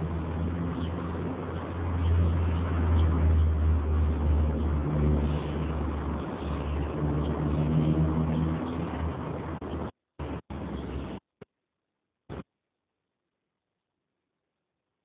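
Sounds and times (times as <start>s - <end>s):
wavering pitched drone: 0.0s - 9.9s
low mechanical rumble: 0.0s - 11.2s.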